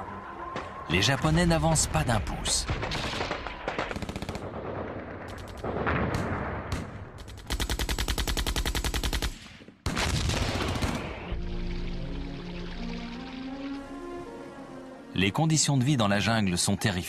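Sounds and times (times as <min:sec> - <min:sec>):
scattered gunshots: 0:01.5 - 0:11.3
machine-gun bursts: 0:02.8 - 0:04.6, 0:07.2 - 0:09.4.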